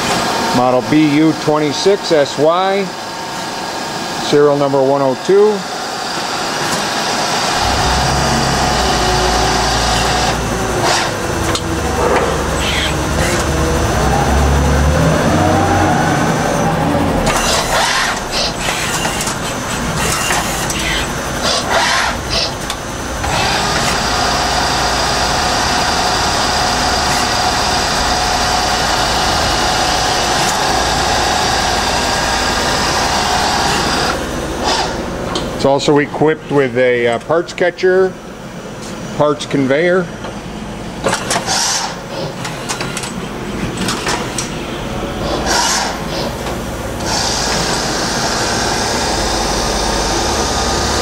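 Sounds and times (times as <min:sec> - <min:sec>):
machine hum with held tone: 0:00.0 - 0:36.8
lathe spindle whine: 0:00.0 - 0:36.9, 0:40.4 - 0:51.0
sharp machine knocks: 0:07.5 - 0:13.6.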